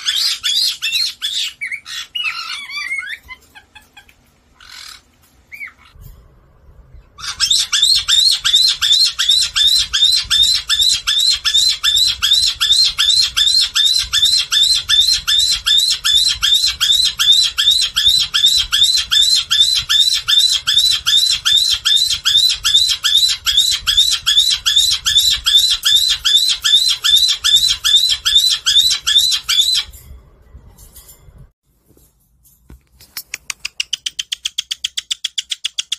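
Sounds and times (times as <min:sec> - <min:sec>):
parrot screaming: 0:00.0 - 0:03.6, 0:04.6 - 0:06.0, 0:07.2 - 0:29.9.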